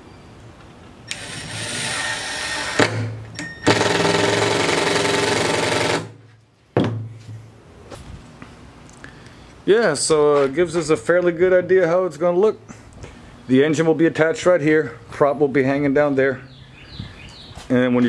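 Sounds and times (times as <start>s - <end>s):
impact driver driving a screw: 1.1s - 6.1s.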